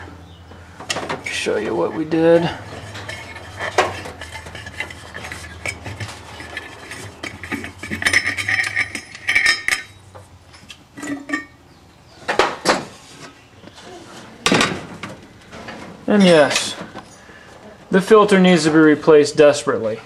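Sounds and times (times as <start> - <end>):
metal lid clanking: 0.9 - 10.0, 10.6 - 11.6
metal clinks and scrapes: 1.3 - 11.6.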